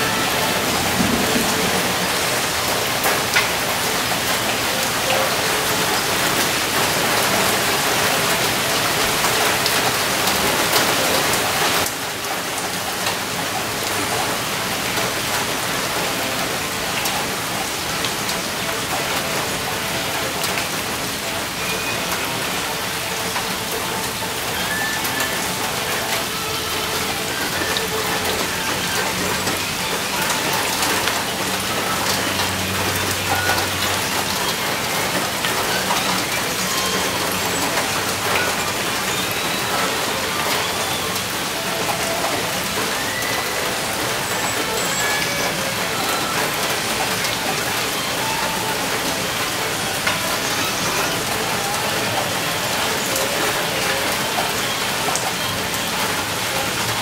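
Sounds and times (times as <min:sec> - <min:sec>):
rain on hard surfaces: 0:00.0 - 0:57.0.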